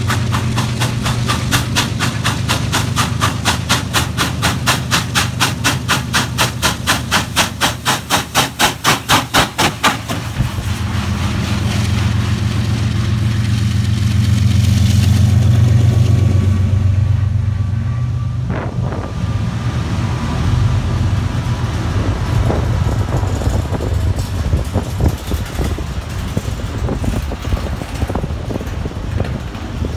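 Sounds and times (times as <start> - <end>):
diesel locomotive drone: 0.0 - 29.9
rumble of passing train cars: 0.0 - 29.9
steam locomotive exhaust chuffs: 0.0 - 29.9.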